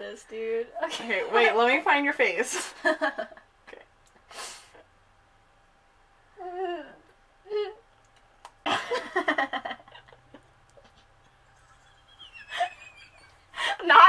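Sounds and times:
breathy puff: 4.3s - 4.8s
women giggling: 8.7s - 14.0s.

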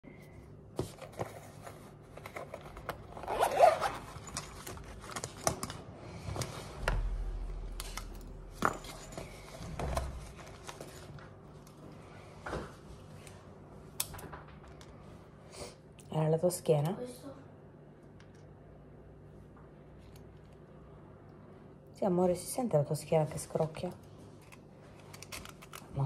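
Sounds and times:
bag rustling: 1.4s - 5.2s
zip pulled open: 3.1s - 4.3s.

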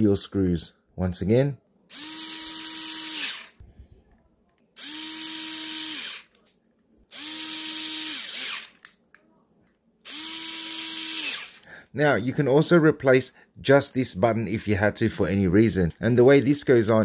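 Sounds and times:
electric screwdriver motor whine: 1.9s - 3.6s, 4.8s - 6.4s, 7.1s - 8.8s, 10.1s - 11.6s.

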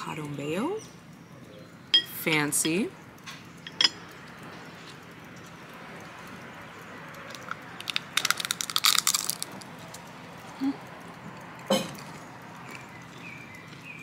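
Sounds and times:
chips crunching when chewed: 7.1s - 10.1s.

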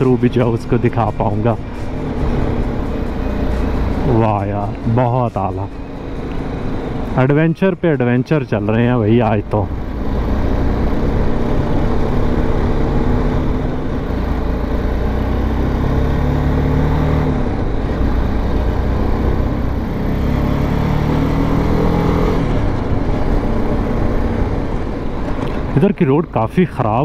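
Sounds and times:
motorcycle engine revving: 0.0s - 7.4s, 8.8s - 25.8s.

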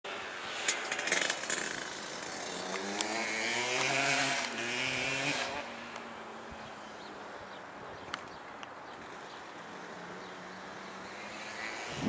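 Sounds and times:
dirt bike engine revving: 0.4s - 5.9s.

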